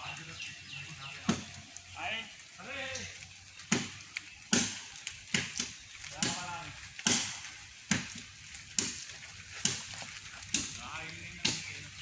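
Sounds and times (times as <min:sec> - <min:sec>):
axe chopping wood: 0:03.7 - 0:10.8.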